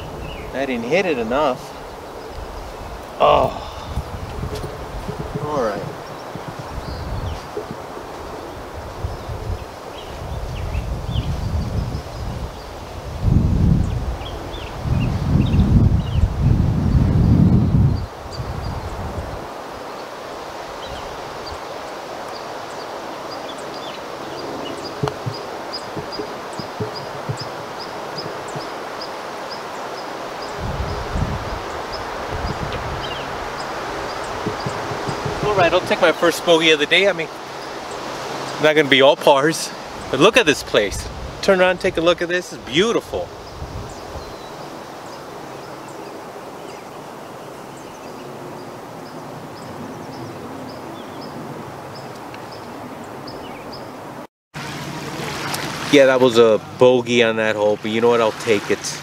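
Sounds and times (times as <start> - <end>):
birds chirping: 0.0 - 13.0, 13.7 - 54.2
leaves rustling: 0.0 - 57.0, 57.6 - 59.0
breeze through trees: 0.0 - 59.0
wind: 0.0 - 59.0
faint bird chirps: 22.3 - 30.6
putter striking golf ball: 25.0 - 28.8.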